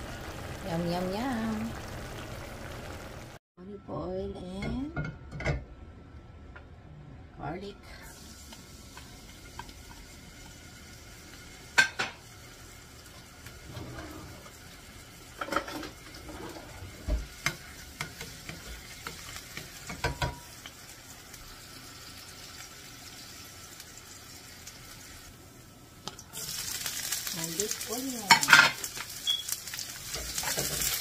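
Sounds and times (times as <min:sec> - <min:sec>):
garlic sizzling in a frying pan: 0:00.0 - 0:03.4, 0:08.0 - 0:31.0.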